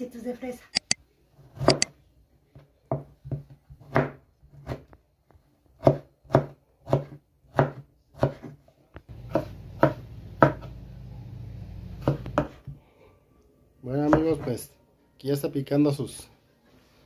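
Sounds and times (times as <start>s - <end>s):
knife chopping on wooden board: 1.6s - 1.9s, 2.9s - 4.9s, 5.8s - 10.8s, 12.0s - 12.6s
steady low hum: 9.1s - 12.4s.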